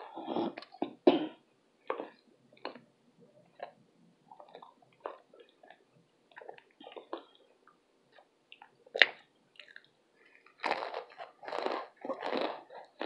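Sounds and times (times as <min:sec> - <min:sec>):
chewing crunches: 0:08.5 - 0:13.0.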